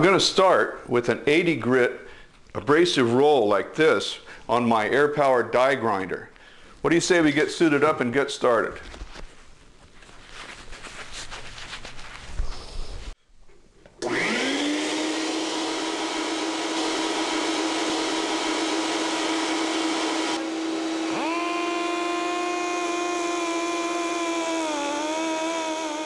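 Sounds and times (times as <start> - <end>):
air die grinder whine: 14.0 - 26.0
shop vacuum whine: 14.0 - 26.0.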